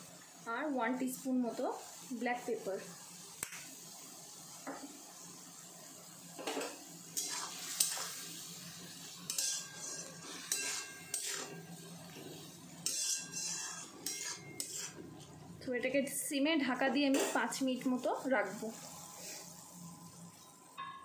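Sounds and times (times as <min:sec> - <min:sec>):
metal spatula scraping in wok: 0:07.2 - 0:08.2, 0:09.3 - 0:15.1, 0:17.0 - 0:17.6.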